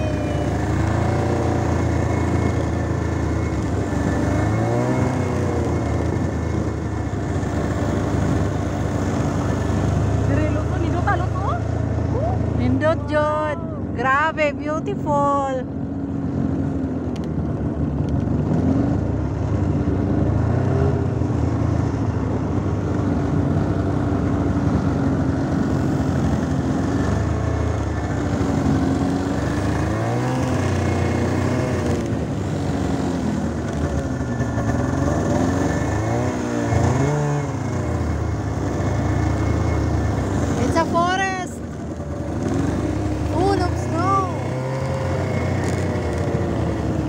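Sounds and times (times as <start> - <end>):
snowmobile engine running: 0.0 - 47.0.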